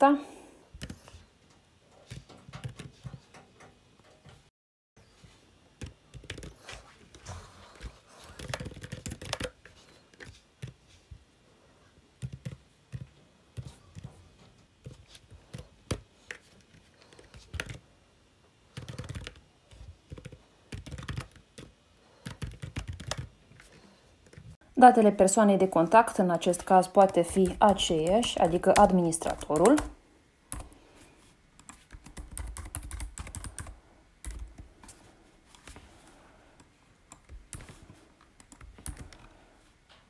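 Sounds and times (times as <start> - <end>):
keyboard typing clicks: 8.3 - 9.6, 18.8 - 19.4.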